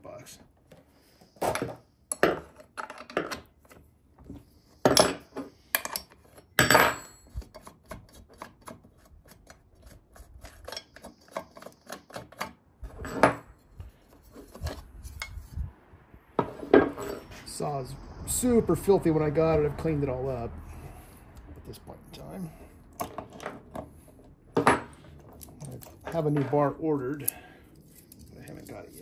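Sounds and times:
small hard parts clattering: 1.4s - 3.8s, 22.9s - 29.0s.

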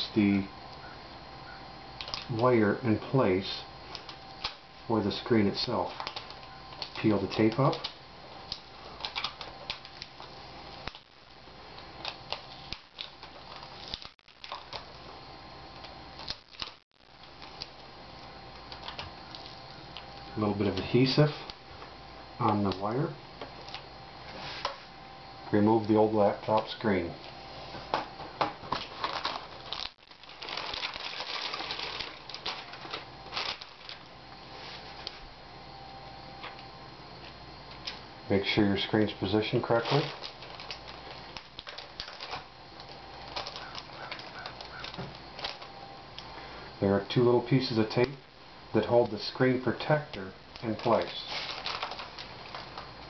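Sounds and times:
adhesive tape peeling crackles: 5.8s - 15.0s, 15.8s - 17.9s, 28.7s - 34.1s, 39.6s - 45.7s, 50.1s - 53.0s.

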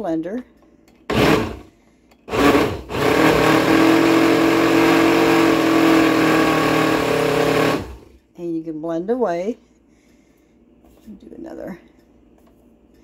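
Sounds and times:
blender motor running: 1.1s - 1.7s, 2.3s - 8.2s.

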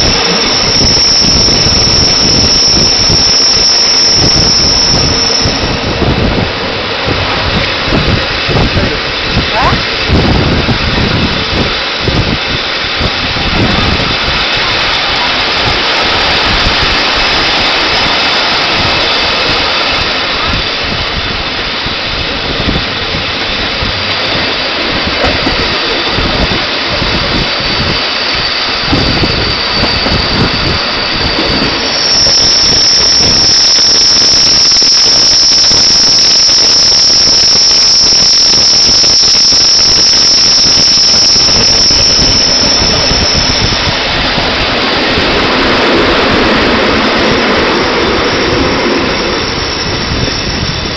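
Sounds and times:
high-pitched wheel squeal: 0.0s - 6.2s, 24.1s - 50.9s
train wheels rumbling on track: 0.0s - 50.9s
wind buffeting microphone: 0.0s - 50.9s.

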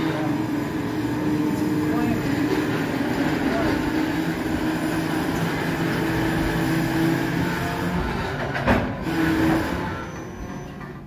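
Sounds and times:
train wheels and brakes grinding: 0.0s - 11.0s
low brake squeal: 9.0s - 11.0s.

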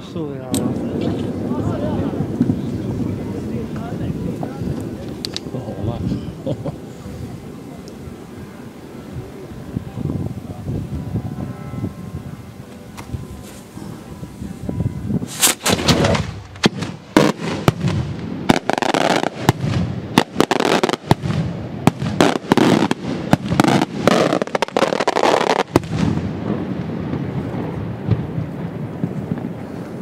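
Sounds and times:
echoing rumble: 0.6s - 24.6s
fireworks shells bursting: 15.2s - 26.2s.

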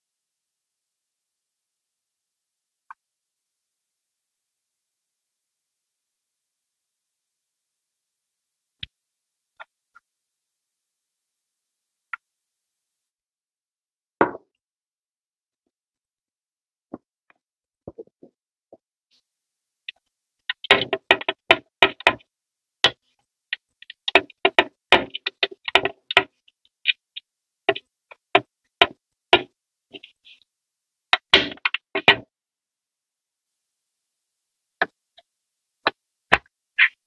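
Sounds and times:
plastic parts knocking and clicking: 20.5s - 23.0s, 23.6s - 27.0s, 27.7s - 30.1s, 31.2s - 32.3s.

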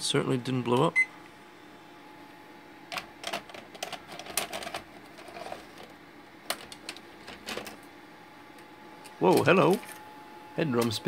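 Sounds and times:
faint steady hum: 0.0s - 11.0s
cassette mechanism clicks and clatters: 2.9s - 7.8s.

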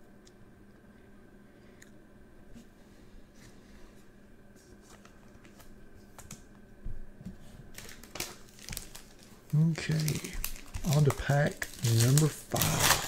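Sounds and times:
foil card pack crinkle: 7.7s - 13.0s.

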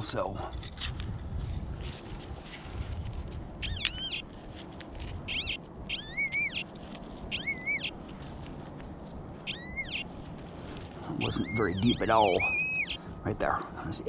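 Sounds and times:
animal high-pitched call: 3.6s - 4.2s, 5.3s - 6.7s, 7.3s - 8.0s, 9.4s - 10.1s, 11.2s - 13.0s.

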